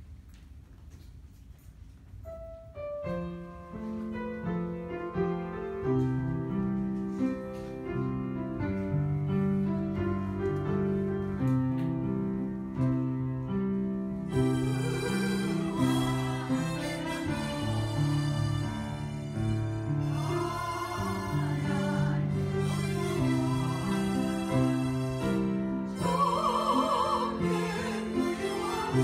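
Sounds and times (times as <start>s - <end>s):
harmonicas playing a tune: 14.2s - 29.0s
slow sustained chords: 14.2s - 29.0s.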